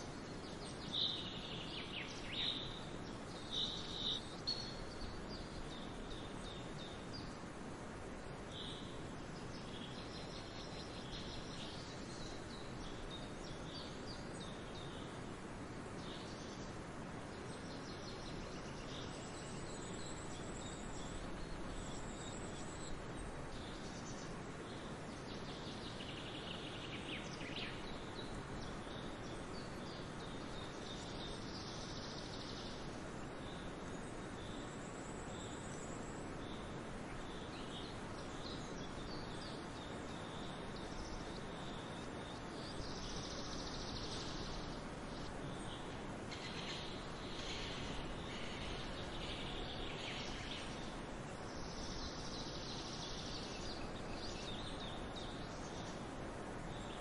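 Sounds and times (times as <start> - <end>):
steady forest hiss: 0.0 - 57.0
bird calls: 45.5 - 50.9.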